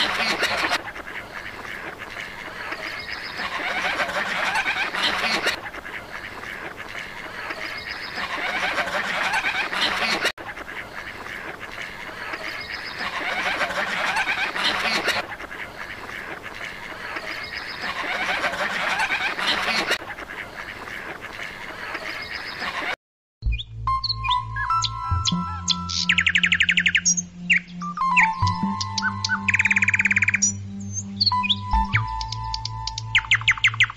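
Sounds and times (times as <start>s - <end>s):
ducks quacking: 0.0s - 23.0s.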